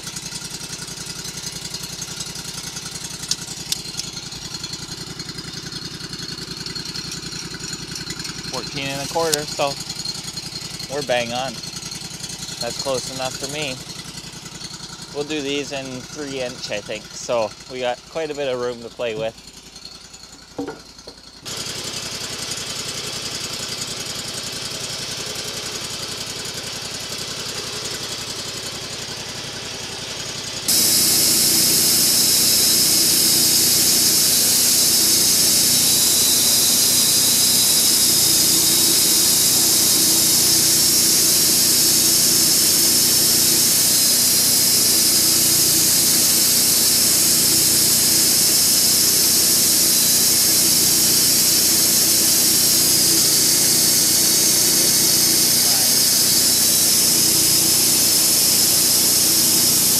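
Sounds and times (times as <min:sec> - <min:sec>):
sawmill engine running: 0:00.0 - 0:59.9
band blade hissing: 0:02.6 - 0:19.4, 0:30.6 - 0:59.9.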